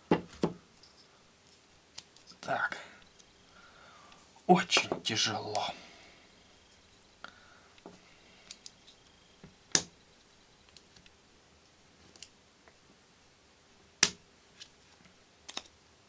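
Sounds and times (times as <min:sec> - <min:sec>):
small parts clicking and tapping: 0:07.7 - 0:09.9, 0:15.5 - 0:15.7.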